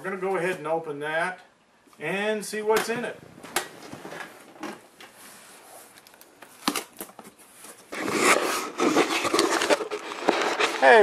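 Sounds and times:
cardboard and plastic bags rustling: 0:02.9 - 0:11.0.

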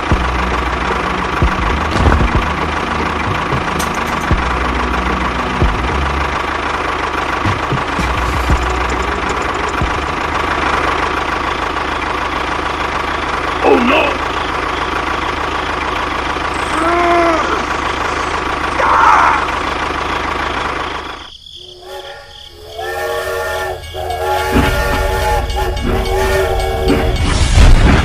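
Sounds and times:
tractor engine running: 0:00.0 - 0:28.0
train horn blasts: 0:21.6 - 0:27.8.

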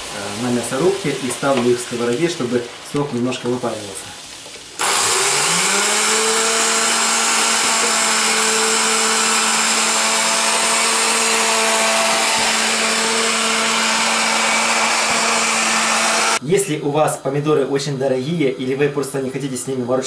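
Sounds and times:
electric meat grinder motor: 0:04.8 - 0:16.4.

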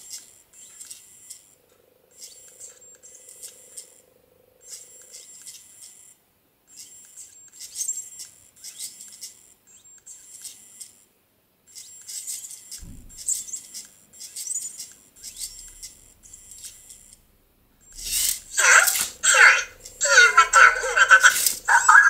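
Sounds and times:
toy robot electronic chirps: 0:02.1 - 0:04.0, 0:04.6 - 0:11.0, 0:11.7 - 0:17.2, 0:17.8 - 0:22.0
low thump: 0:12.8 - 0:13.4.

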